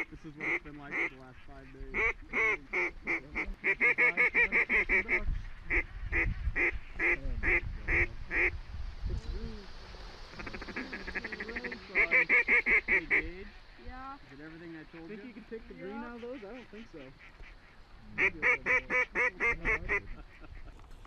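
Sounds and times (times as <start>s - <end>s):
rapid bird chatter: 0.0s - 8.6s, 9.7s - 21.0s
waterfowl calls: 0.0s - 8.6s, 10.3s - 21.0s.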